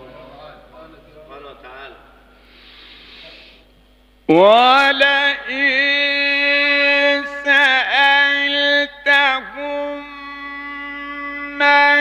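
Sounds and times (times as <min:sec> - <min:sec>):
man chanting melodically: 0:04.3 - 0:12.0.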